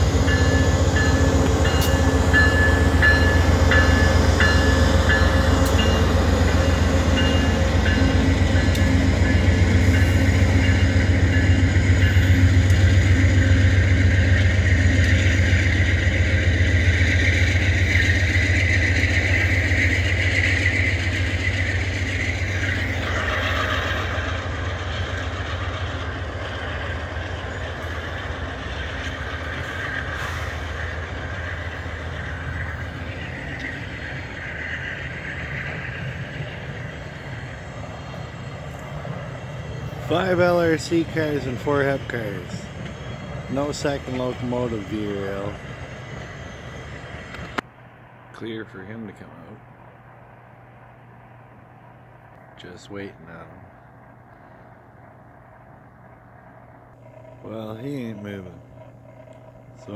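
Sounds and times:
train rumbling past: 0.0s - 59.9s.

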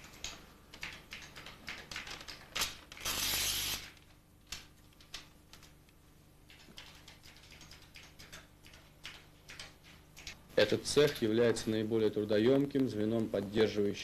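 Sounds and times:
keyboard tapping: 6.5s - 10.0s.

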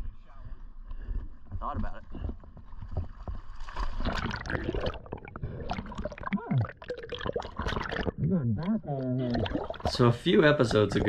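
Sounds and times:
sea water splashing and bubbling: 3.6s - 11.0s
muffled underwater gurgling: 4.2s - 11.0s.

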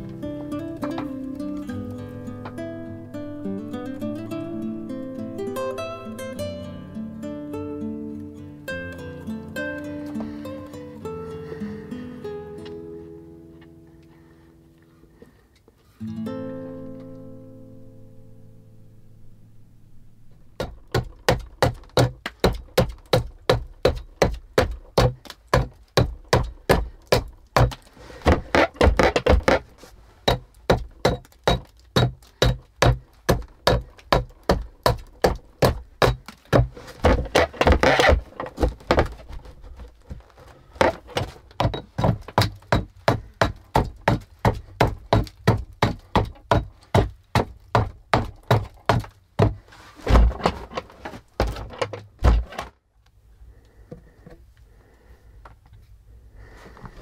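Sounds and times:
axe chopping wood: 20.6s - 29.6s, 30.2s - 39.2s, 40.8s - 50.7s.

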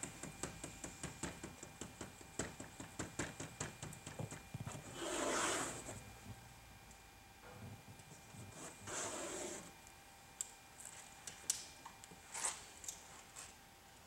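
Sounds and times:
towel rubbing glass: 4.8s - 6.0s, 8.5s - 9.7s.

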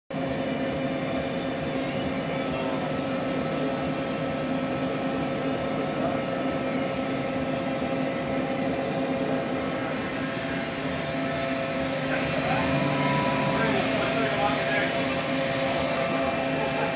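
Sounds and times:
machine equipment humming: 0.1s - 16.9s.

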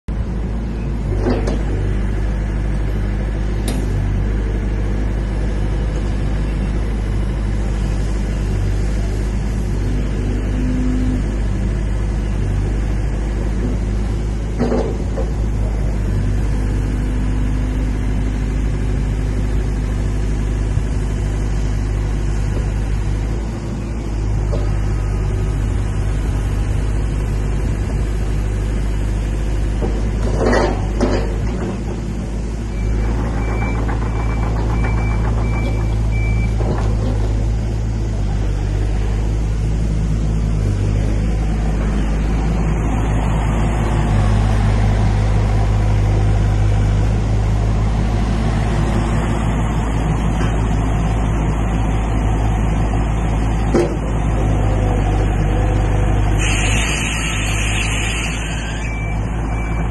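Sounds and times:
excavator diesel engine running: 0.1s - 59.9s
heavy clunks: 14.5s - 15.7s, 32.8s - 37.6s, 53.7s - 54.1s
high beeps: 58.6s - 59.9s.

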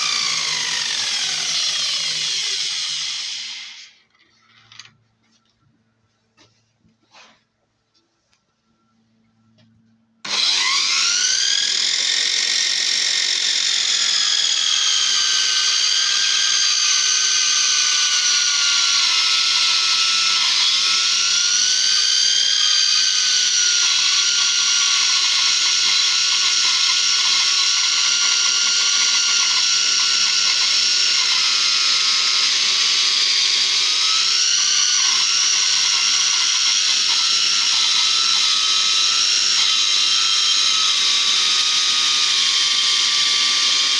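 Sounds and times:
bandsaw motor whine: 0.0s - 4.0s, 10.2s - 43.9s
saw blade cutting wood: 10.2s - 43.9s.

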